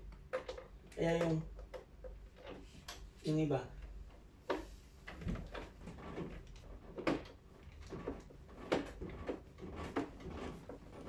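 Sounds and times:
clicks and knocks of handled parts: 0:00.0 - 0:03.2.

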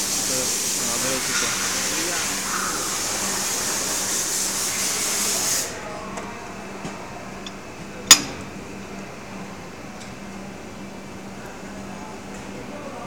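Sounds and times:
loud steady hiss: 0:00.0 - 0:06.1
low machine hum: 0:05.7 - 0:13.0.

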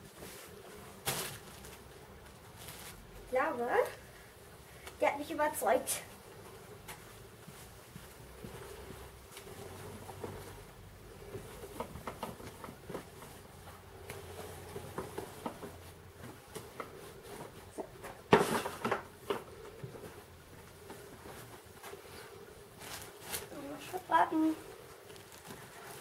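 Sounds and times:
clatter or rustle: 0:08.4 - 0:20.2, 0:20.8 - 0:24.1.

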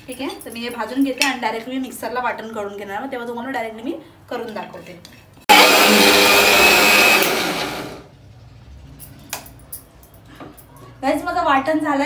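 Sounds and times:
mixer grinder running: 0:05.5 - 0:08.1.

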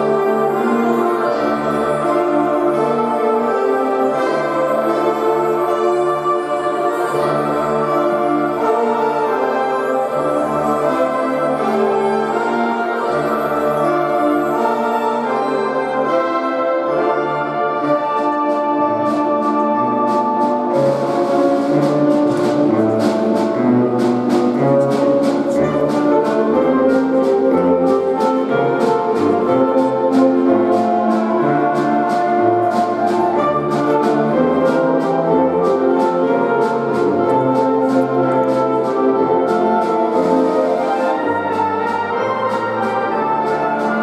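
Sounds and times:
brass and woodwind chords: 0:00.0 - 0:44.0
percussion strikes: 0:18.4 - 0:44.0.

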